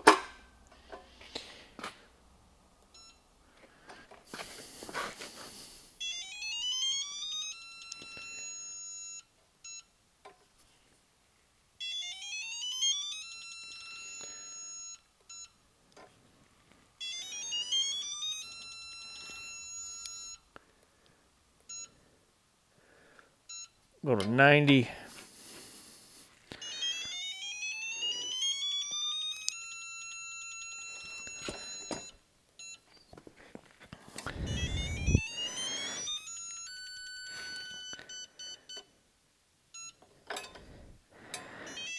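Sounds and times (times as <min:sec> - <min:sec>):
steady high beeps: 0:26.6 - 0:32.8, 0:34.3 - 0:38.9, 0:41.6 - 0:41.9
rising electronic tone with chirps: 0:34.3 - 0:36.2.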